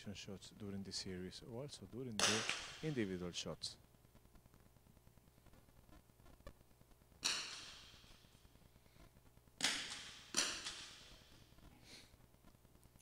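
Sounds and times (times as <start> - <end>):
rifle shots echoing: 2.2 - 3.2.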